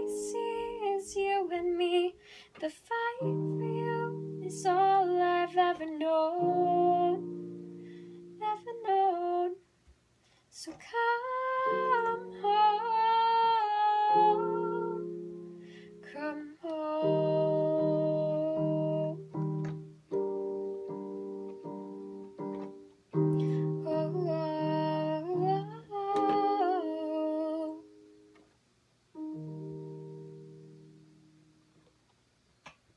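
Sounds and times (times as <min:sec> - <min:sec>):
keyboard playing piano chords: 0:00.0 - 0:01.2, 0:03.2 - 0:09.1, 0:11.4 - 0:28.4, 0:29.1 - 0:31.9
woman humming: 0:23.7 - 0:27.8.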